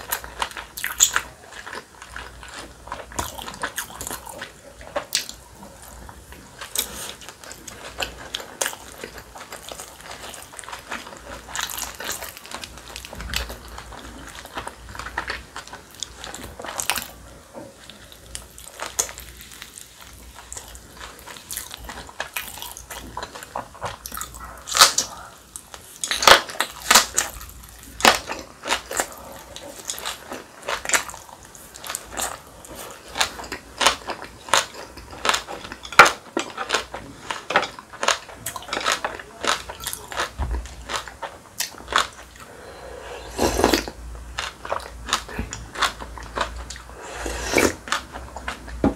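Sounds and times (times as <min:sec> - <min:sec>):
wet chewing and crunching: 0:00.0 - 0:48.9.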